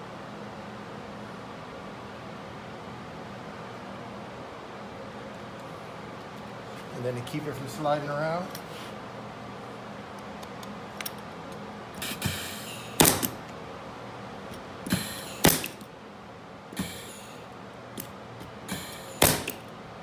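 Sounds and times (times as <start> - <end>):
nail gun clacks: 12.0 - 13.4, 14.9 - 15.8, 18.7 - 19.6
nail gun whir: 12.0 - 13.5, 14.8 - 15.9, 16.8 - 17.4, 18.0 - 19.7.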